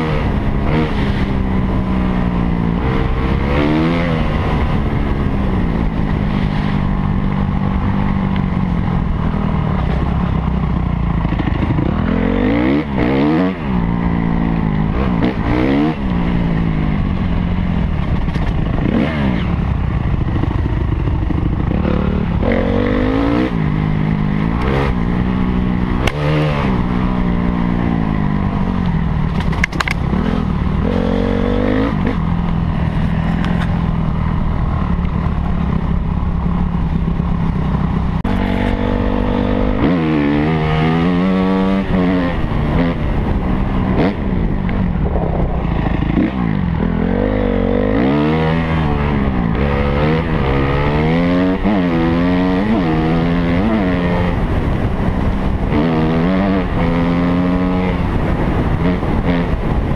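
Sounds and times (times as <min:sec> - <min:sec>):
motorcycle engine revving: 0:00.0 - 0:59.9
motorcycle knocking over bumps: 0:29.3 - 0:30.1.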